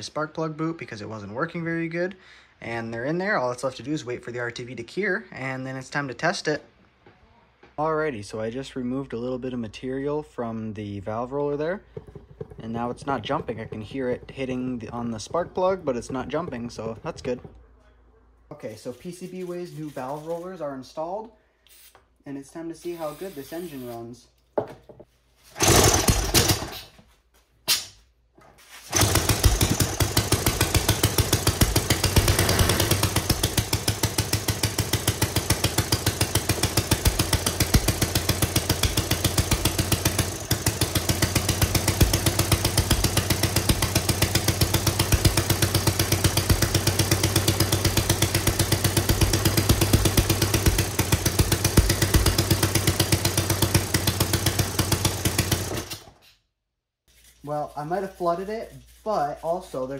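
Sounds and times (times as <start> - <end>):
small engine running: 12.0 - 17.6, 25.6 - 26.8, 28.9 - 56.2
pull cord starting: 25.6 - 26.9, 28.9 - 56.3.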